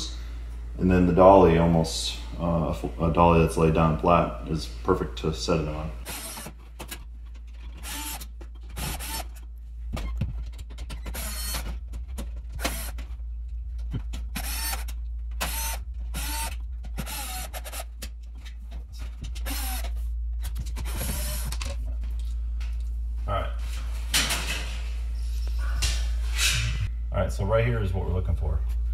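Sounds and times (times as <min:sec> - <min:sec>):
cordless drill motor whine: 0:08.8 - 0:09.3, 0:11.1 - 0:11.6, 0:14.4 - 0:17.8, 0:19.4 - 0:19.8, 0:20.8 - 0:21.6.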